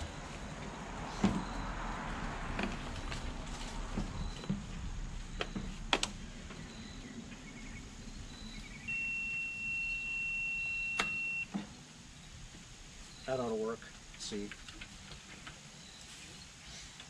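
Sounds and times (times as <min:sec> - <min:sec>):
high electronic beep: 0:06.6 - 0:07.1, 0:07.7 - 0:11.5.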